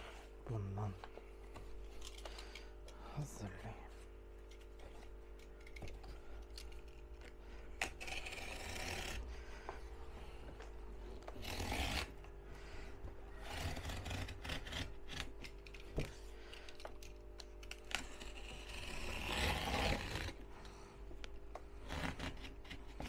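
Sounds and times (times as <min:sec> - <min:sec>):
cardboard being cut: 0:07.8 - 0:09.3, 0:11.3 - 0:12.2, 0:13.3 - 0:16.0, 0:17.8 - 0:20.4, 0:21.8 - 0:23.0.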